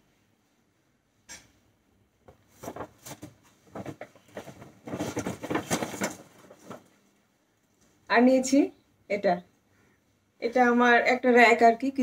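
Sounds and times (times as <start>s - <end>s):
rustling with light knocks and clatter: 2.2s - 7.2s.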